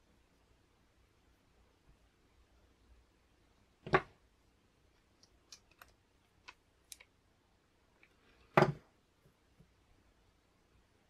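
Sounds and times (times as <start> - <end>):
knock on wooden desk: 8.6 - 8.8.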